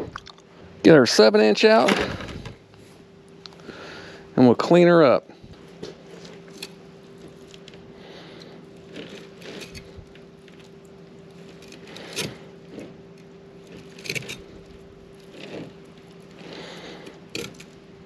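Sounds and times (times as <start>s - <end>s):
knife scraping fish scales: 6.0s - 17.8s.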